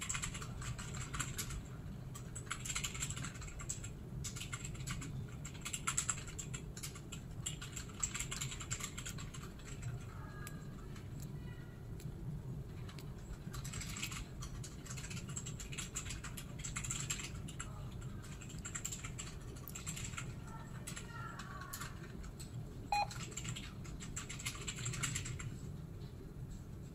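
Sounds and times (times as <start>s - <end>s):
short beep: 22.9s - 23.1s.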